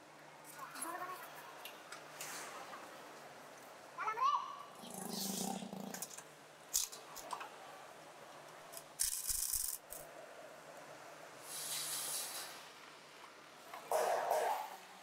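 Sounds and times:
clicks and rattles of parts handled: 6.0s - 7.5s, 8.7s - 10.1s
power wrench hissing and rattling: 8.8s - 10.0s, 11.4s - 12.7s.

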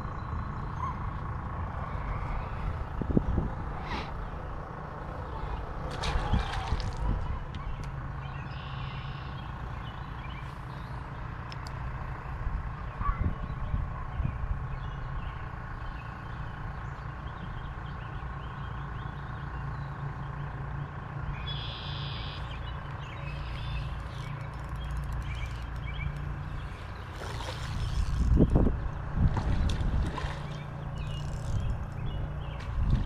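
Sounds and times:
low outdoor rumble: 0.0s - 33.0s
bird trilling: 21.4s - 26.8s.

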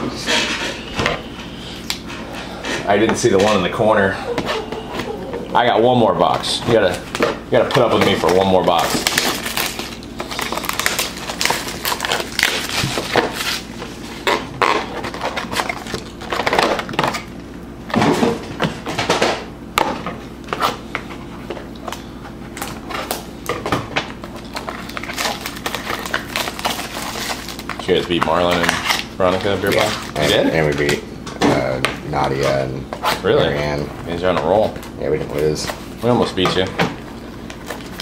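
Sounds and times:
plastic wrap crinkling: 6.4s - 17.3s, 24.1s - 31.0s, 34.6s - 38.0s
cardboard rustling: 6.6s - 16.5s.

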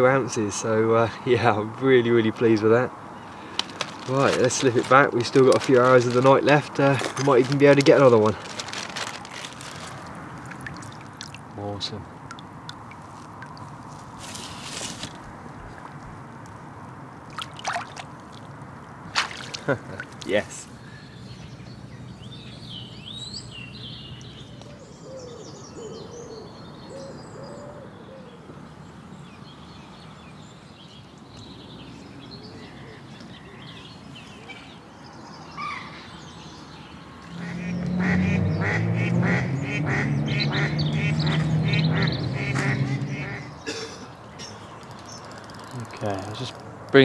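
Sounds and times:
waterfowl honking and quacking: 37.4s - 43.6s.

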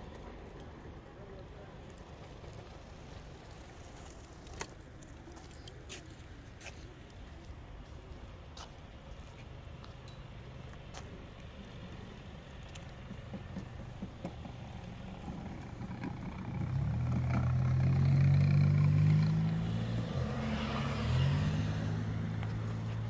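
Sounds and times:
vehicle engine running: 10.7s - 19.6s.

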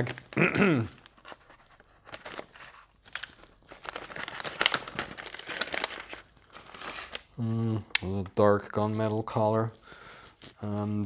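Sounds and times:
plastic bag crinkling: 0.0s - 7.4s.

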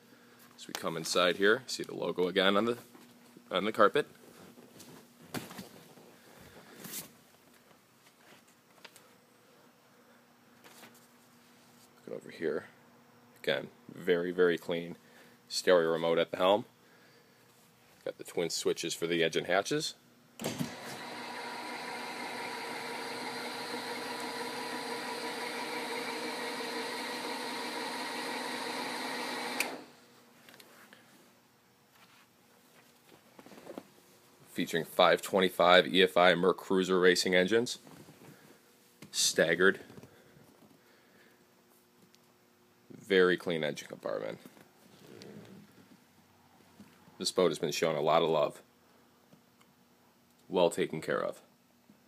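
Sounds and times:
hatch actuator motor hum: 20.4s - 30.0s
actuator click: 29.4s - 29.8s
soft rustling: 30.2s - 34.5s.

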